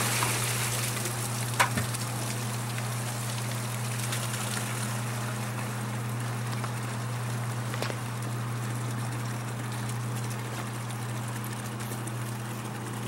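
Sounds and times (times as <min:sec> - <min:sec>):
water pouring into plastic bucket: 0:00.0 - 0:06.9
pump humming: 0:00.0 - 0:13.0.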